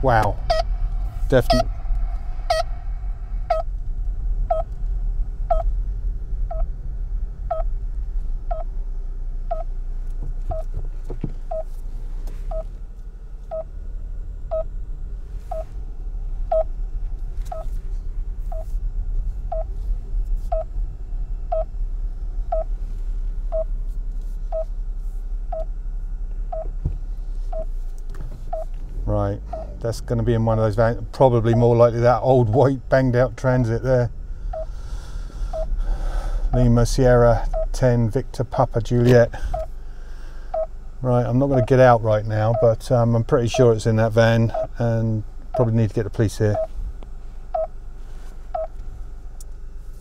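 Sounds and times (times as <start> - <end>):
tracking receiver beeping: 0.2 - 0.7, 1.4 - 1.7, 3.5 - 3.7, 4.5 - 4.7, 5.5 - 5.7, 6.5 - 6.7, 7.5 - 7.7, 8.5 - 8.7, 9.5 - 9.7, 10.5 - 10.7, 11.5 - 11.7, 12.5 - 12.7, 16.5 - 16.7, 17.5 - 17.8, 18.5 - 18.7, 19.5 - 19.7, 20.5 - 20.7, 21.5 - 21.7, 22.5 - 22.7, 23.5 - 23.7, 25.5 - 25.7, 34.5 - 34.7, 35.5 - 35.8, 37.4 - 37.8, 39.5 - 39.7, 40.5 - 40.7, 41.5 - 42.8, 44.5 - 44.8, 46.5 - 46.7, 47.5 - 47.7, 48.5 - 48.8.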